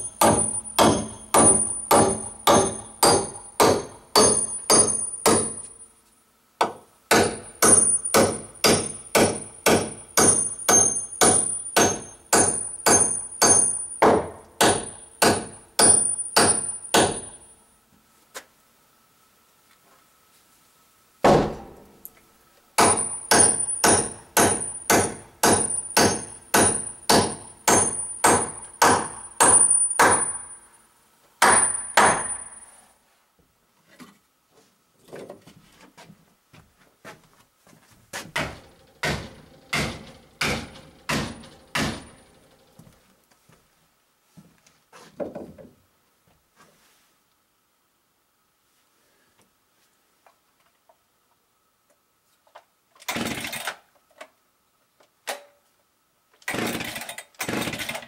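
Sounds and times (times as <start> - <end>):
hammer blows ringing metallic: 0.0 - 5.8, 7.1 - 17.4, 22.8 - 30.6, 39.0 - 42.3.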